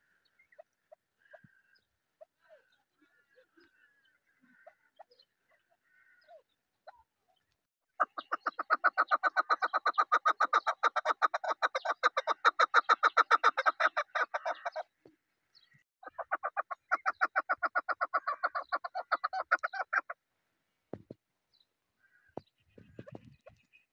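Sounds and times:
partridge calling: 0:08.0 - 0:14.9, 0:15.6 - 0:20.2, 0:22.0 - 0:23.9.

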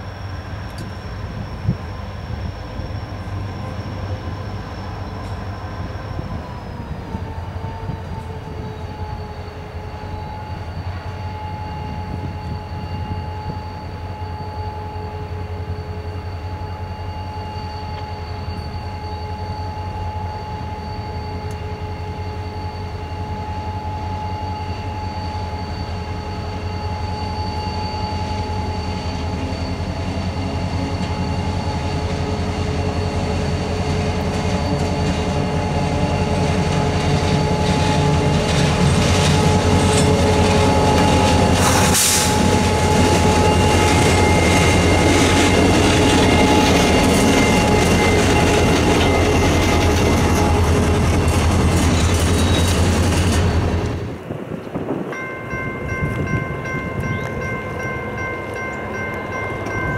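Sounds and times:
diesel locomotive passing: 0:00.0 - 0:59.9
railcars rolling by: 0:00.0 - 0:59.9
steady high ringing: 0:00.0 - 0:59.9.

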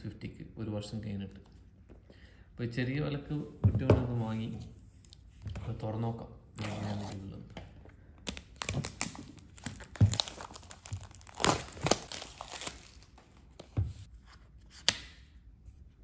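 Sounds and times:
plastic wrapping crinkling: 0:08.2 - 0:13.7.

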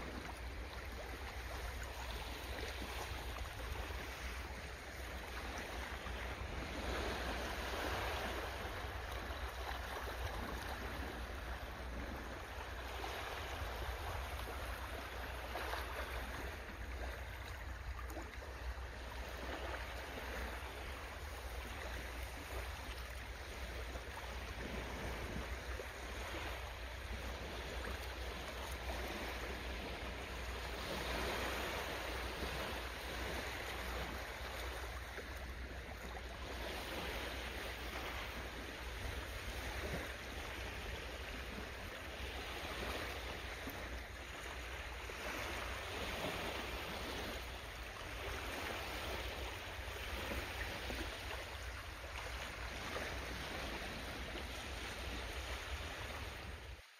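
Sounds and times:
rushing water: 0:00.0 - 0:56.9.

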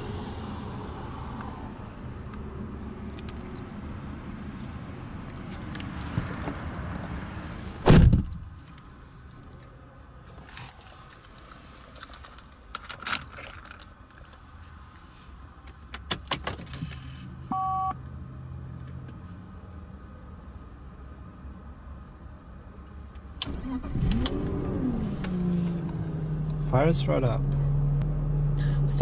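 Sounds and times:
car door thunk: 0:07.8 - 0:08.5.

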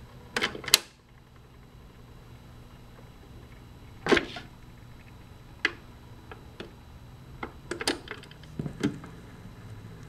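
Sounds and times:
low steady hum: 0:00.0 - 0:10.0
record changer clicks and clunks: 0:00.3 - 0:01.6, 0:07.4 - 0:09.2.

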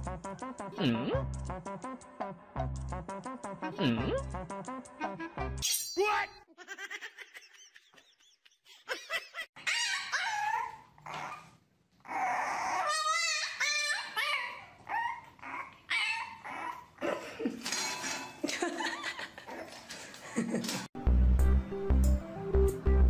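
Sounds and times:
puppy whining and yipping: 0:09.6 - 0:17.0.

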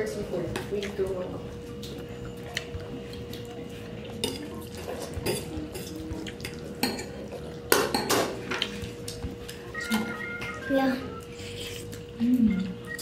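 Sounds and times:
forks clinking on ceramic plates: 0:04.1 - 0:08.8.

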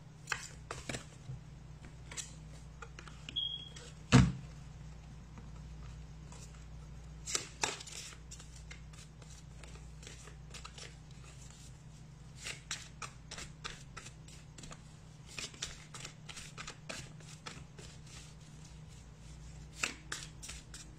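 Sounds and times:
cards being shuffled: 0:07.2 - 0:11.6, 0:12.4 - 0:18.3.

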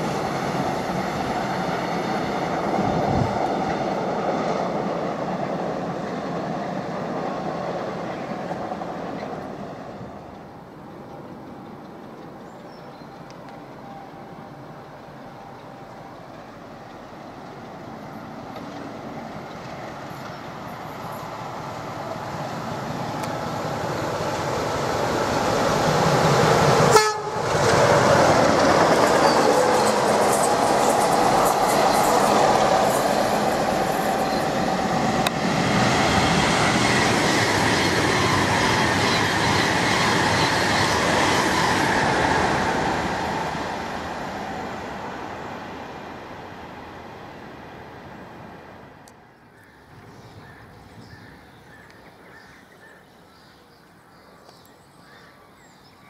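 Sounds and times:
train passing at speed: 0:00.0 - 0:56.0
train horn: 0:26.8 - 0:27.6.

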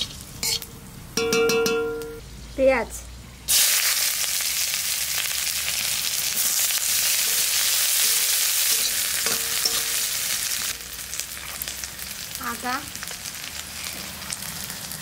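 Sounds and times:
onions sizzling in hot oil: 0:00.0 - 0:01.2, 0:02.2 - 0:15.0
metal spatula scraping pan: 0:06.4 - 0:10.7.

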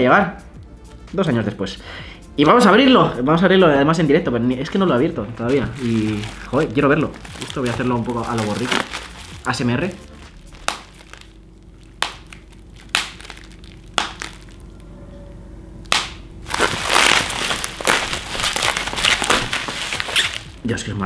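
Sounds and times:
bubble wrap popping: 0:05.4 - 0:14.8, 0:15.9 - 0:20.7
plastic crinkling and crunching: 0:05.4 - 0:14.8, 0:15.9 - 0:20.8.

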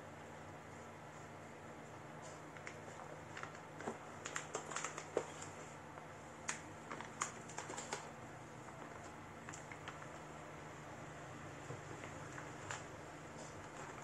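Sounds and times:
faint steady hum: 0:00.0 - 0:14.0
packaging clicks and rustles: 0:02.5 - 0:05.6, 0:06.4 - 0:10.3, 0:11.8 - 0:14.0.

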